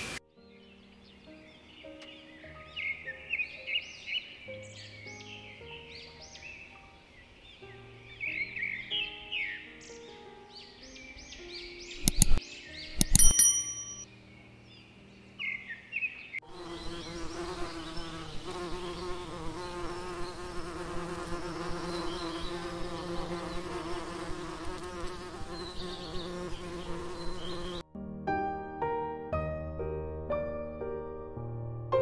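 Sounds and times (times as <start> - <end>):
bright bell-like ding: 13.0 - 14.1
honeybees buzzing: 16.4 - 27.8.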